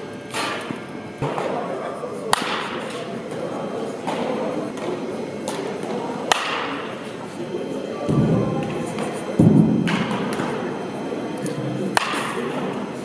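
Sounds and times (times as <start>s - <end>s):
echoing background: 2.4s - 13.0s
bat striking ball: 6.3s - 6.8s, 12.0s - 12.4s.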